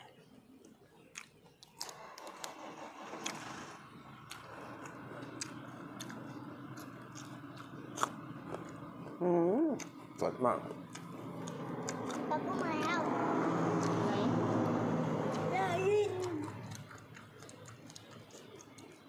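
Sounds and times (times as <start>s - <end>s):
chewing leafy vegetables: 0.0s - 19.0s
steady motor hum: 2.0s - 19.0s
crisp mouth clicks: 16.2s - 19.0s.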